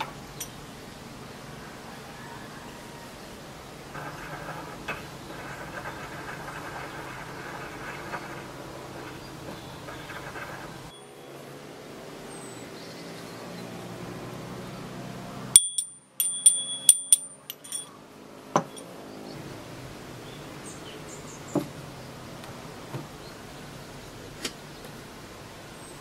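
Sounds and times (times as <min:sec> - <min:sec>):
metal spoon tapping dish: 0:15.6 - 0:17.9.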